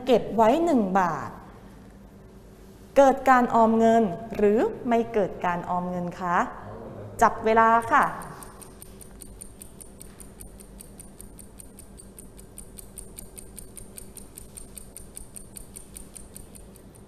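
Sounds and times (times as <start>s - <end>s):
rapid clock ticking: 7.8s - 17.0s.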